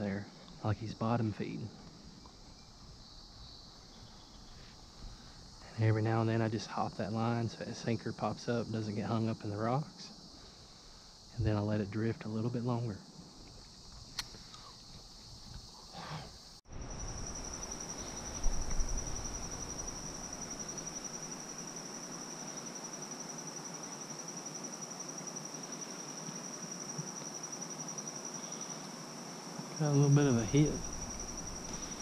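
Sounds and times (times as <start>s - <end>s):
insects trilling: 0.0s - 32.0s
riverside ambience: 24.6s - 32.0s.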